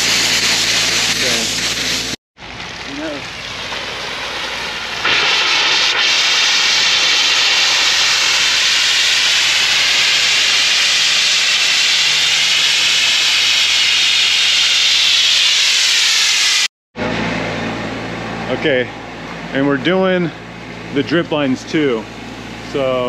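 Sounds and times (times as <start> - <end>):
compressed air hissing from pipes: 3.8 - 16.7.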